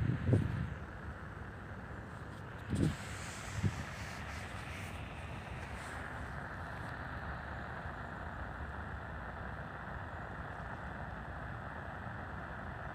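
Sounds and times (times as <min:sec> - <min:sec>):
radio static hiss: 0:02.1 - 0:08.6.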